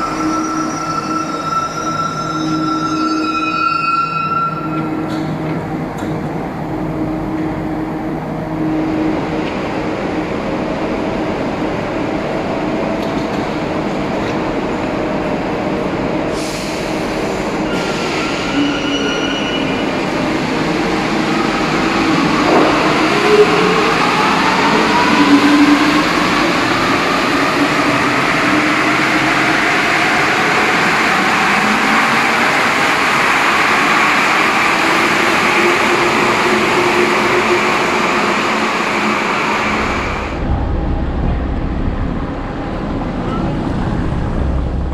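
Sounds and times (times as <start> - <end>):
metro train rushing and whining: 0.0 - 44.9
low rumble: 39.8 - 44.9.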